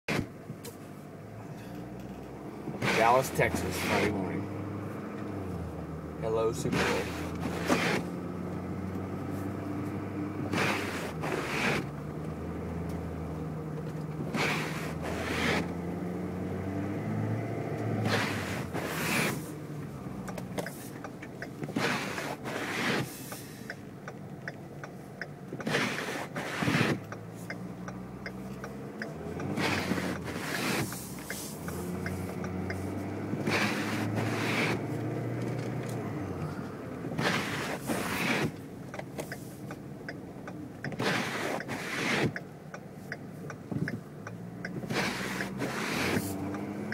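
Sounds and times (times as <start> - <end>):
car engine hum: 0.0 - 46.9
windshield wipers swishing: 0.1 - 1.0, 2.0 - 46.9
light ticks: 20.2 - 21.7, 23.2 - 25.7, 27.0 - 33.4, 38.6 - 46.9.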